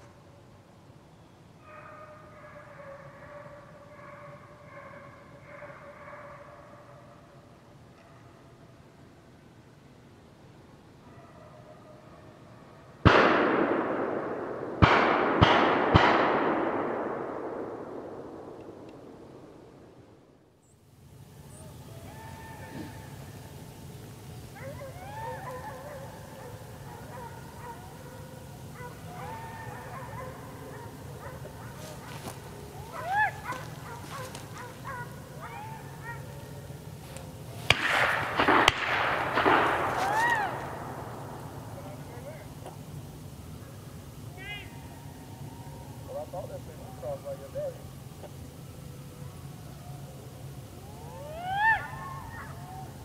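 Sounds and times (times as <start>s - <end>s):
hounds yelping and baying: 1.6s - 7.2s, 24.3s - 37.7s
echoing gunshots: 13.0s - 20.2s, 35.9s - 42.6s
sharp cracks: 13.0s - 20.3s, 22.5s - 43.9s.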